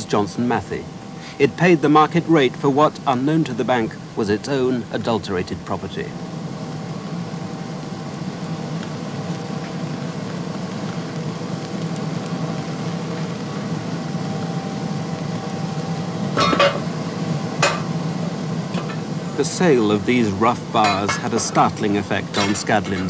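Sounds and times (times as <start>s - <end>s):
furnace rushing and humming: 6.2s - 23.0s.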